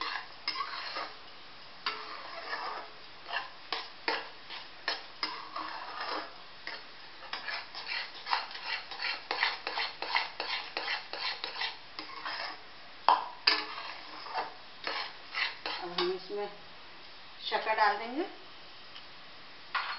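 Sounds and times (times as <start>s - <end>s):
metal spatula scraping a pan: 0.0s - 1.2s, 1.8s - 12.6s, 13.4s - 16.4s.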